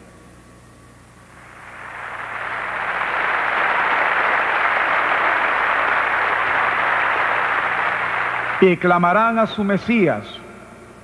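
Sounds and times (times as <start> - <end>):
congregation applauding: 1.4 - 9.5.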